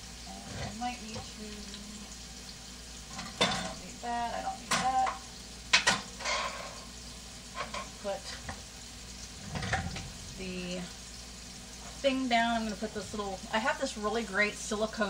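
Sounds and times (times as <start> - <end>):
meat sizzling in a frying pan: 0.0 - 15.0
kitchen items clattering and clinking: 0.4 - 1.3, 3.1 - 3.8, 4.6 - 6.9, 7.5 - 8.6, 9.4 - 10.2.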